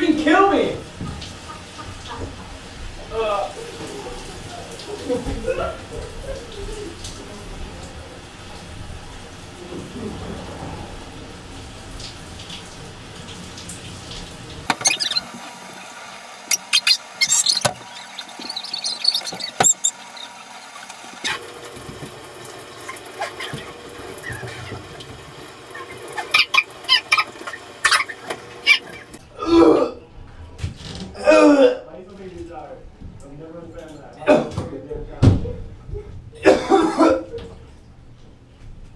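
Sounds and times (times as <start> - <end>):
shower water spraying: 0.4 - 29.2
squeaky high-pitched bursts: 14.8 - 15.4, 16.5 - 20.3.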